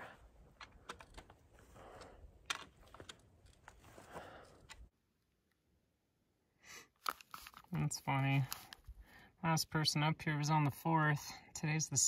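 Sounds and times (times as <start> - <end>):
clicks and knocks of handling: 0.5 - 4.9.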